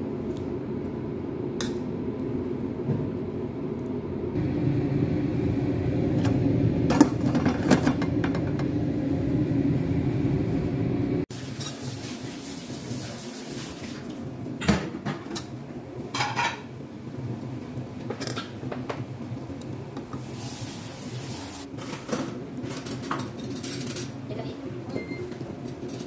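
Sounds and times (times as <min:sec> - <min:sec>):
low hum: 0:00.0 - 0:11.3.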